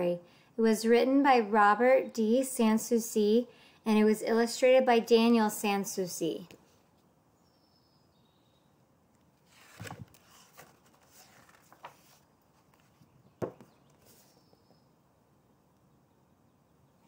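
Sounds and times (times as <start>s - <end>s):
book pages rustling: 9.4s - 14.5s.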